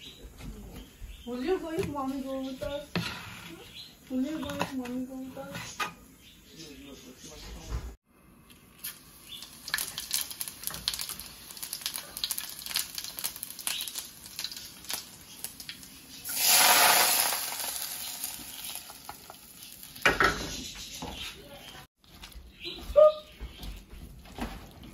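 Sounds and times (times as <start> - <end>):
seeds crackling in hot oil: 8.3 - 22.4
hot oil sizzling on food: 8.6 - 21.0.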